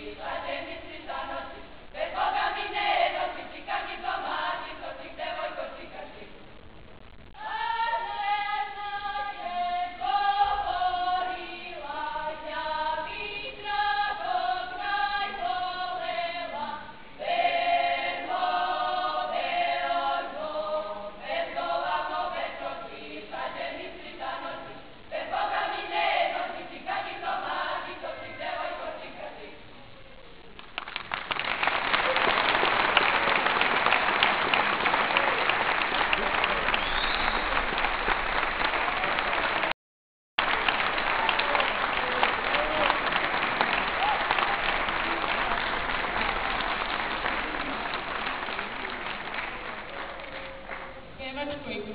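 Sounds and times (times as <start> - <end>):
group singing in chorus: 0.0 - 6.3, 7.4 - 29.6
audience applause: 30.6 - 39.8, 40.4 - 51.0.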